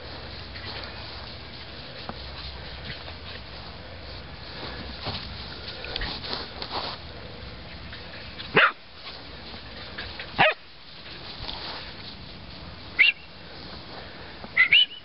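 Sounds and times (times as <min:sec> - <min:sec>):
puppy barking: 0:08.5 - 0:08.8, 0:10.4 - 0:10.6, 0:14.6 - 0:15.0.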